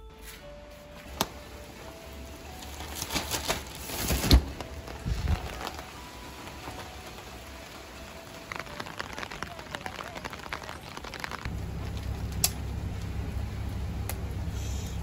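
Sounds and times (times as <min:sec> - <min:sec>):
umbrella rustling open: 0:00.2 - 0:11.5
steady rain: 0:00.9 - 0:15.0.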